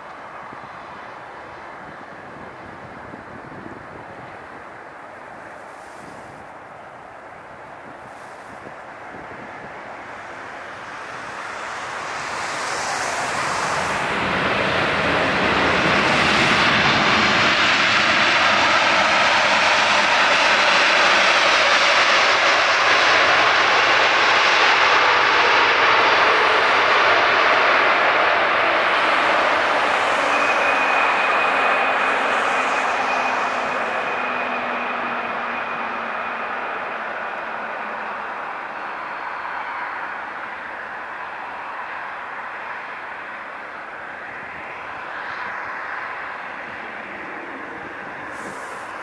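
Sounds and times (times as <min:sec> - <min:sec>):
jet engine rush: 0:00.0 - 0:49.0.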